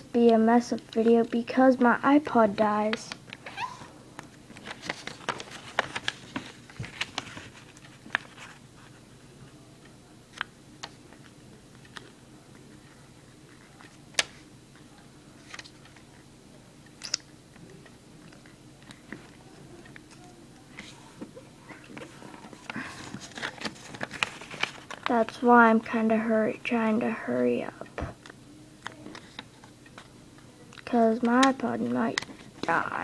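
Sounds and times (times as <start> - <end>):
paper crinkling and creasing: 4.5 - 9.0, 15.4 - 16.1, 21.7 - 25.5.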